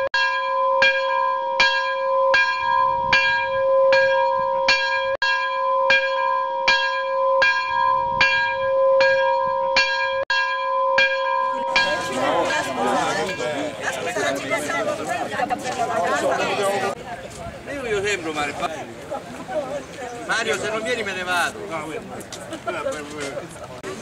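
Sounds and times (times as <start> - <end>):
bell ringing: 0.2 - 15.0.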